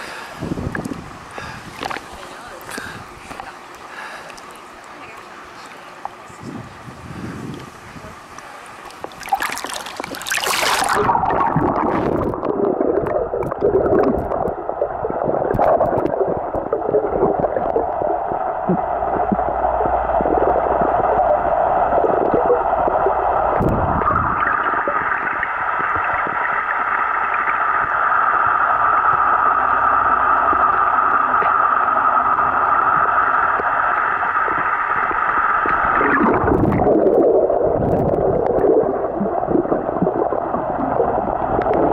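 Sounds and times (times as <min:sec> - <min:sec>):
muffled underwater gurgling: 0:00.0 - 0:41.9
steady hum: 0:00.0 - 0:41.9
camera splashing into water: 0:09.0 - 0:12.4.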